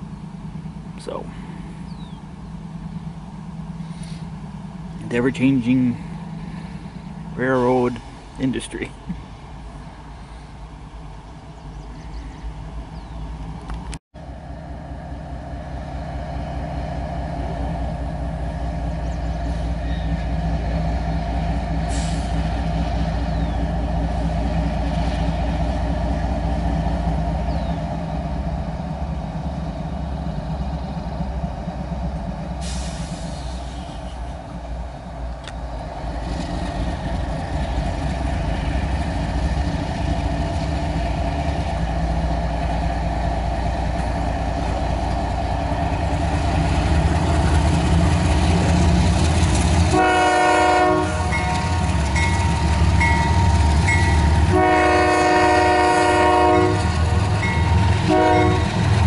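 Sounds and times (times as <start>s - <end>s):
locomotive engine rumble: 0.0s - 59.0s
train air horn blasts: 49.9s - 51.8s, 53.9s - 58.9s
crossing bell dinging: 51.0s - 54.5s, 57.2s - 58.8s.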